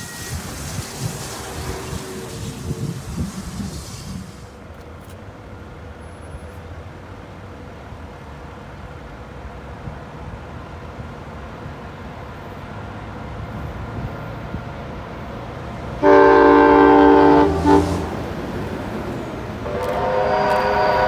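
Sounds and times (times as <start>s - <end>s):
low train rumble: 0.0s - 21.0s
train horn blast: 16.0s - 18.4s, 19.6s - 21.0s.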